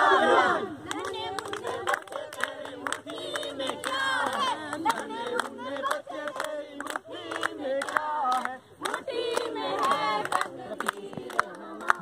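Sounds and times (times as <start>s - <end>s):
group shouting a chant: 0.0s - 0.7s
hands clapping: 0.8s - 12.0s.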